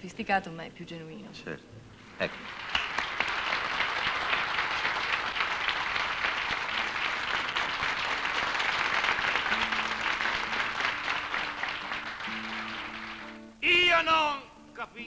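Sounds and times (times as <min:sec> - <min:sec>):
audience applauding: 0:02.2 - 0:13.5.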